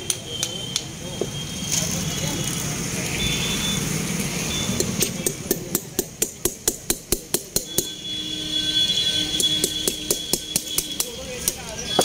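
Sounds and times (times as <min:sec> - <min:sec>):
metal spike tapping into coconut: 0:04.8 - 0:08.0, 0:09.4 - 0:12.0.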